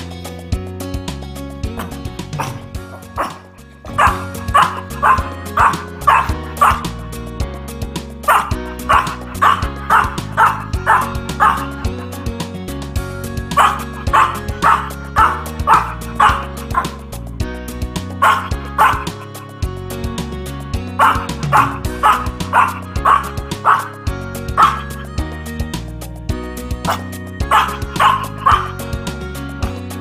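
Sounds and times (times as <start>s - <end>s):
music backing track: 0.0s - 30.0s
dog yipping and howling: 1.8s - 6.9s, 8.3s - 12.0s, 13.5s - 17.0s, 18.2s - 19.3s, 21.0s - 25.0s, 26.9s - 28.8s.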